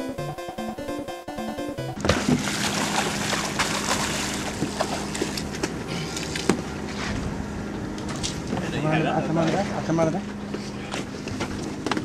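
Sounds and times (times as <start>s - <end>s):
boat machinery humming: 0.0s - 12.0s
water splashing against boat hull: 2.0s - 5.8s.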